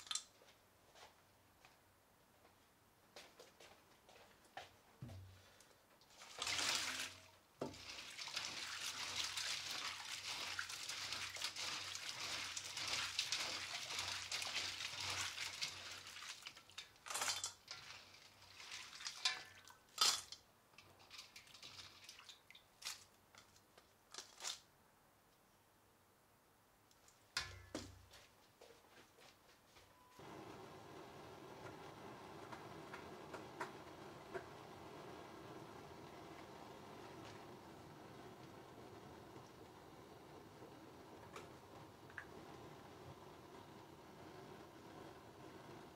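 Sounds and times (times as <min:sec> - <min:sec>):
water splashing in steel basin: 0:06.1 - 0:19.8.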